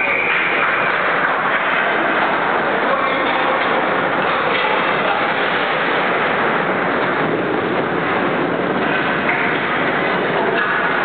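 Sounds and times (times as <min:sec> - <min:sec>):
echoing ice rink hall noise: 0:00.0 - 0:11.0
skates on ice: 0:00.0 - 0:11.0.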